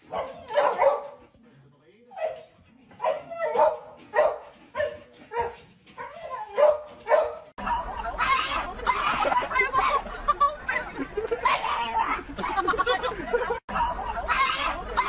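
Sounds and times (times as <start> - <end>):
voices: 0.0 - 15.0
small dog barking: 0.1 - 1.2, 3.0 - 5.6, 6.5 - 7.5.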